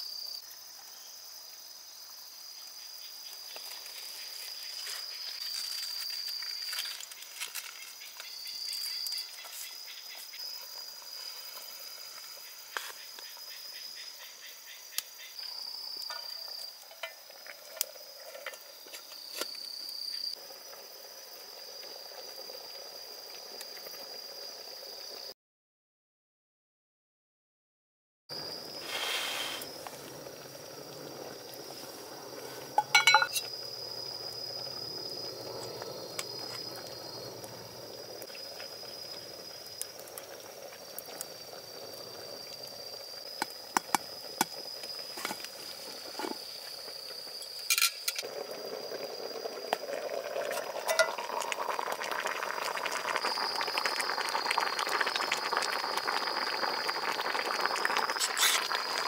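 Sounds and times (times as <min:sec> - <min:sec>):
stew bubbling: 0:28.3 - 0:47.4, 0:48.2 - 0:59.0
metal clinks on cooking pot: 0:32.8 - 0:33.5, 0:50.9 - 0:51.2.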